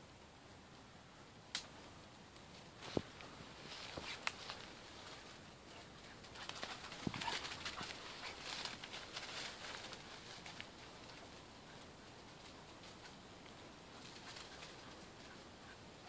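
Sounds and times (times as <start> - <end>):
dry leaves rustling and crackling: 2.5 - 15.4
twigs snapping: 3.8 - 4.7.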